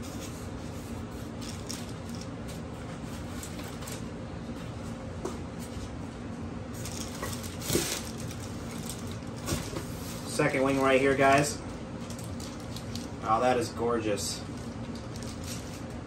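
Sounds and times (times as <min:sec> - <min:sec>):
steady low hum: 0:00.0 - 0:16.0
styrofoam and plastic wrap rustling: 0:06.8 - 0:13.5, 0:14.5 - 0:16.0.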